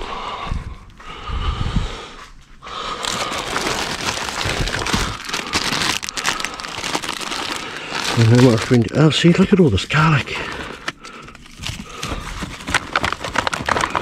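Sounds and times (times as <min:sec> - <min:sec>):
plastic bags crinkling: 0:02.8 - 0:14.0.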